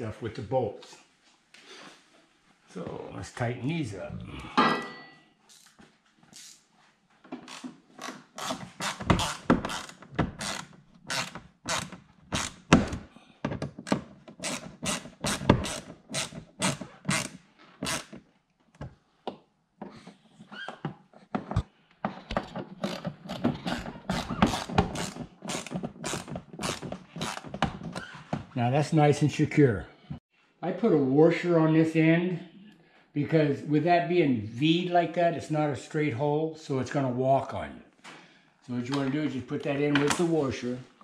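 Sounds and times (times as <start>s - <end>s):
screwdriver clicks and knocks: 22.3s - 28.0s.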